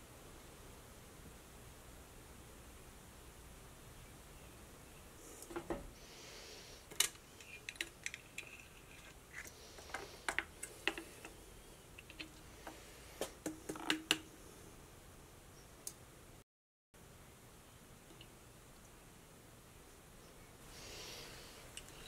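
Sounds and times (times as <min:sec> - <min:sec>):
metal hook clicking and scraping: 0:06.9 - 0:10.0.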